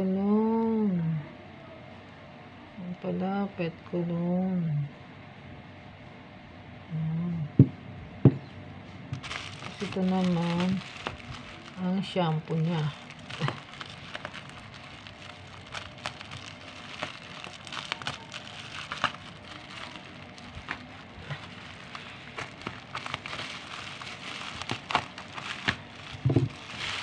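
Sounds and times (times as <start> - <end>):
bubble wrap crinkling: 9.1 - 27.0.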